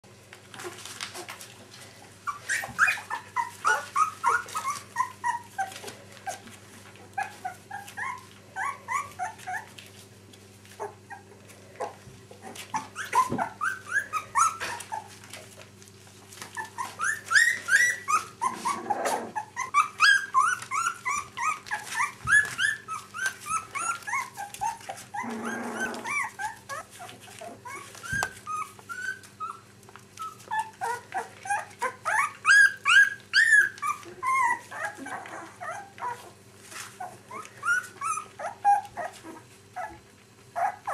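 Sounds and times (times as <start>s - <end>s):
puppies whimpering: 2.0s - 10.0s, 10.6s - 15.6s, 16.3s - 40.9s.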